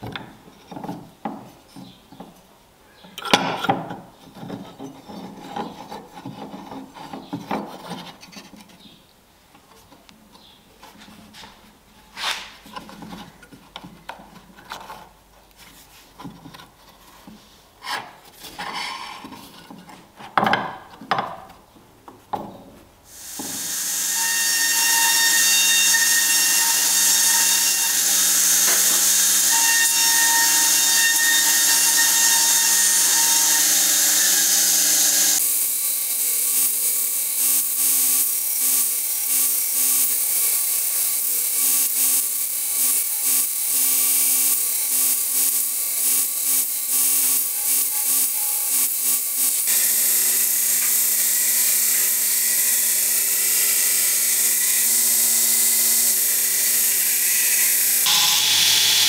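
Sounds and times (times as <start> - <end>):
belt sander grinding: 46.5 - 59.0.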